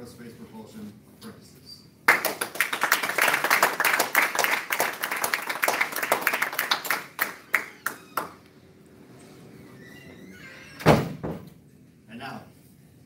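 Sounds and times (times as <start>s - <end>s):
audience clapping: 2.1s - 8.4s.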